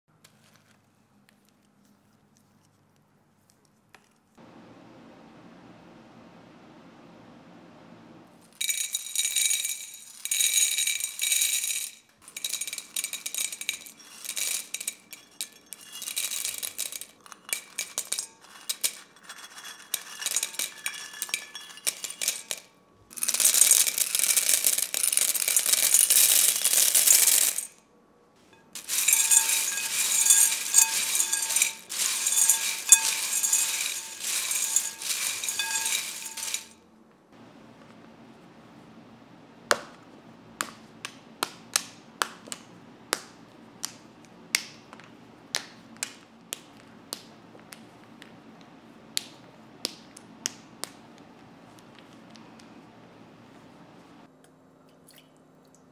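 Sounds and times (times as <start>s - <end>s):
cereal rattling in glass bowl: 8.6s - 27.8s, 28.7s - 36.8s.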